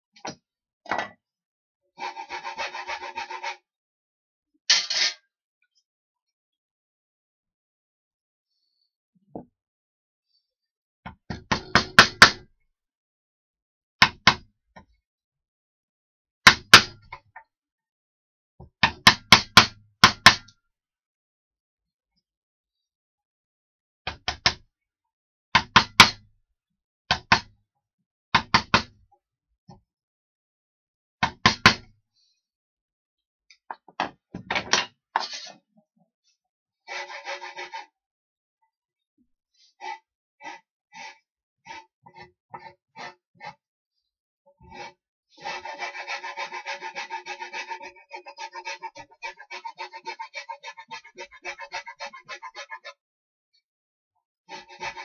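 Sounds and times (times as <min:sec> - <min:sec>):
hand tool sawing or rasping: 0:02.0 - 0:03.6, 0:36.9 - 0:37.9, 0:44.7 - 0:52.9, 0:54.5 - 0:55.0
short scrapes: 0:36.9 - 0:37.9.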